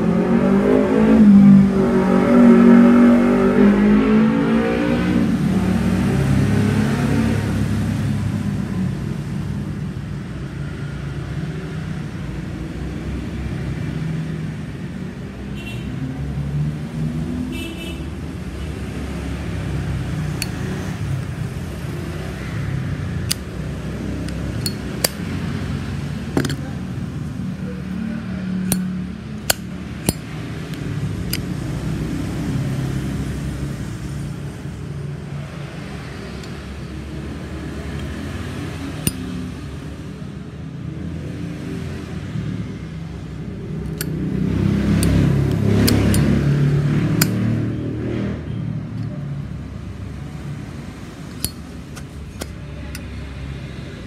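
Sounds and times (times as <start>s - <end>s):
lighter case clicks and taps: 23.2s - 23.5s, 24.2s - 25.3s, 26.4s - 26.6s, 28.6s - 31.5s, 43.8s - 44.2s, 45.0s - 46.3s, 51.2s - 53.1s.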